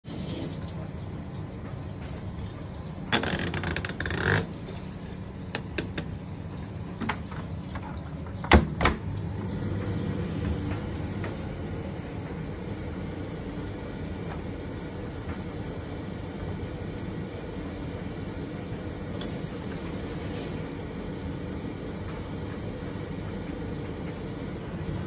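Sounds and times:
dryer motor humming: 0:00.0 - 0:25.0
dryer door clacking shut: 0:08.4 - 0:09.1.

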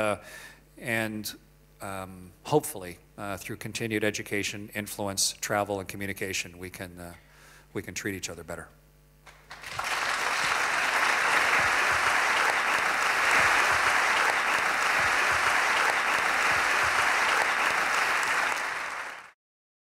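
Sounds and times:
audience applauding: 0:09.3 - 0:19.4.

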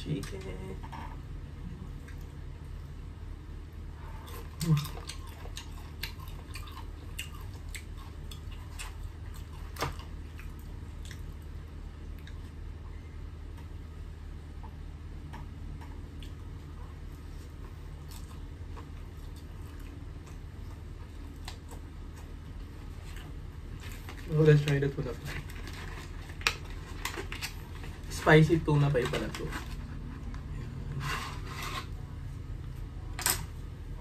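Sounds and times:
steady low hum: 0:00.0 - 0:34.0
chewing fried chicken: 0:03.8 - 0:13.0, 0:15.4 - 0:31.0.

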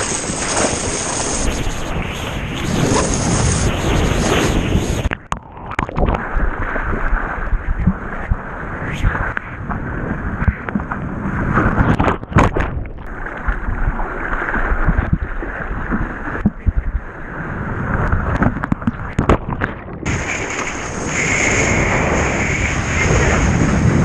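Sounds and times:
sea water splashing: 0:00.0 - 0:24.0.

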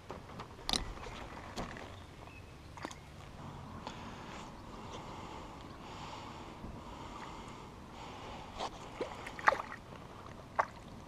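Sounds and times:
water splashes: 0:02.7 - 0:03.2, 0:08.7 - 0:11.0.

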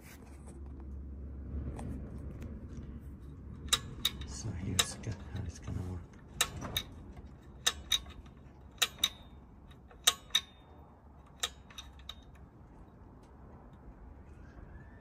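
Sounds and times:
metal throttle linkage clicks: 0:03.5 - 0:13.8.

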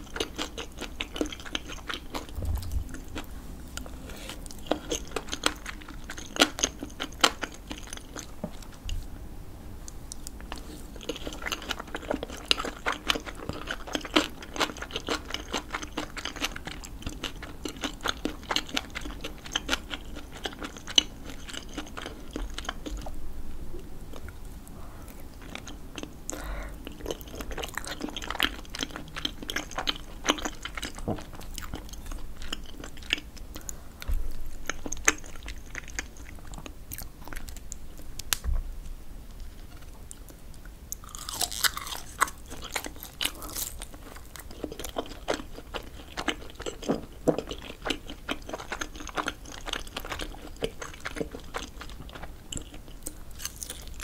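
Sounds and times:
close chewing: 0:00.0 - 0:09.1, 0:09.9 - 0:23.2, 0:25.0 - 0:38.3, 0:39.4 - 0:54.0
crunchy bite: 0:41.0 - 0:44.4.

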